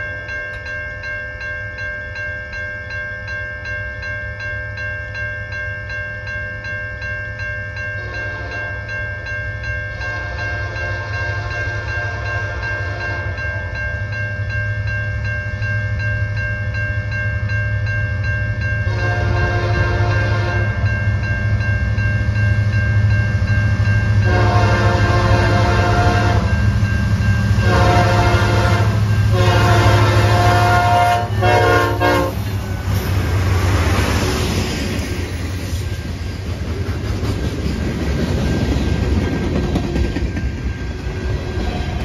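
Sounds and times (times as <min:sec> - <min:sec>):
crossing bell ringing: 0:00.0 - 0:42.0
train air horn blasts: 0:08.0 - 0:08.8, 0:09.9 - 0:13.4, 0:18.8 - 0:20.8, 0:24.2 - 0:26.6, 0:27.6 - 0:32.6
locomotive rumble: 0:18.7 - 0:42.0.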